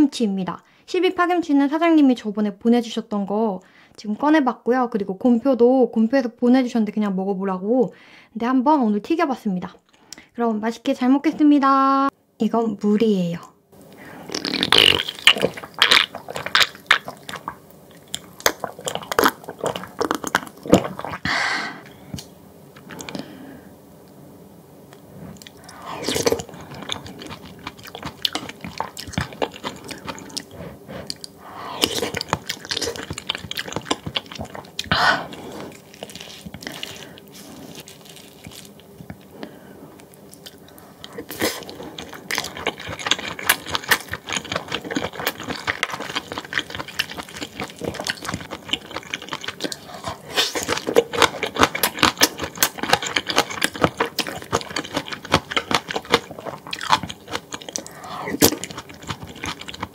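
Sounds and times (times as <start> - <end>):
person chewing food: 13.8 - 23.4, 24.9 - 59.9.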